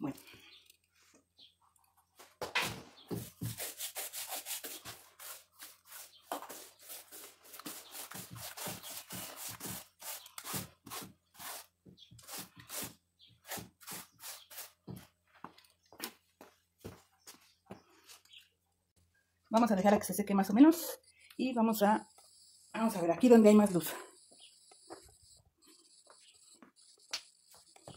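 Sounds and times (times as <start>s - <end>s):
paintbrush scrubbing on wall: 3.1s - 15.0s.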